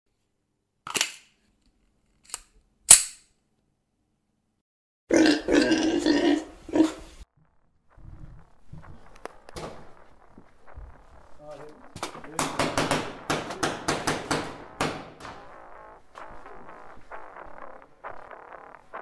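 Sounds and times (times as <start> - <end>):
pig grunting: 5.1 - 7.1
sharp gunshots: 11.9 - 16.7.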